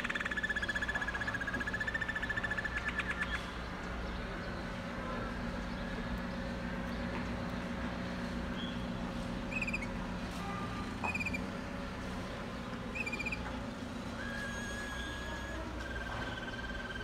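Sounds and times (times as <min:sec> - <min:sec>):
canary singing: 0:00.0 - 0:03.5, 0:09.5 - 0:11.6, 0:12.8 - 0:17.0
steady low hum: 0:00.0 - 0:17.0.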